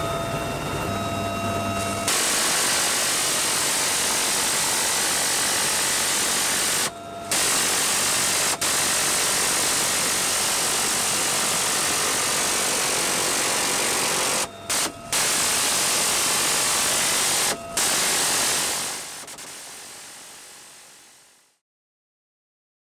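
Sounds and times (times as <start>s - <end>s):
helicopter engines and rotor: 0.0s - 21.3s.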